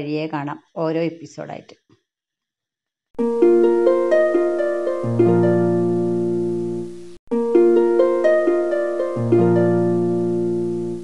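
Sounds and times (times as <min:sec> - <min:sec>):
plucked string music: 0:03.2 - 0:11.0.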